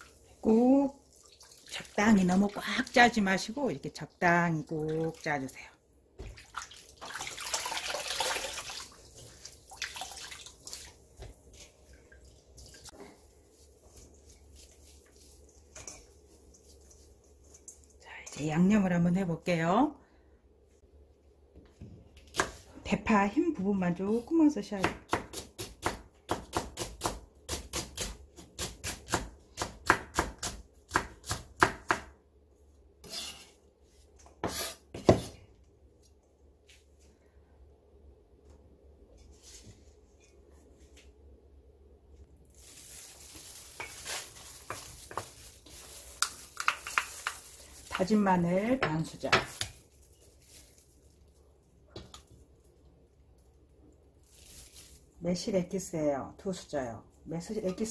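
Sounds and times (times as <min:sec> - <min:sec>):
water splashing and dripping: 0:01.0 - 0:03.1, 0:06.2 - 0:13.0
knife scraping cutting board: 0:33.0 - 0:33.6, 0:34.4 - 0:35.3.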